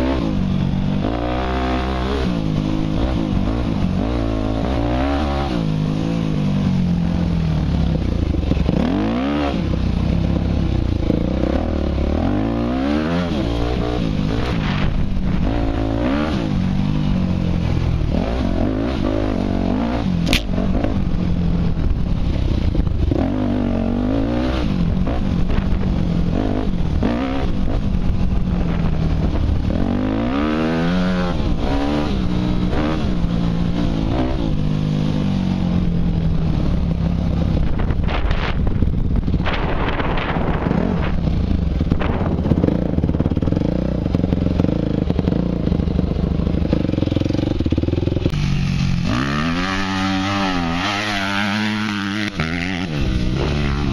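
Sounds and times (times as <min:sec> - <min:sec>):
dirt bike engine revving: 0:00.0 - 0:53.9
sharp click: 0:20.2 - 0:20.6.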